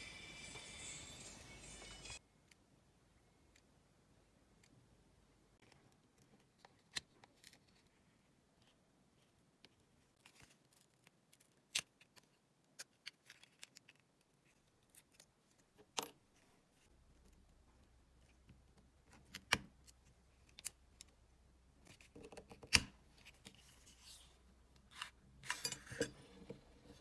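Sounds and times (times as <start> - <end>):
metal tool clicks and scrapes: 25.0 - 26.6.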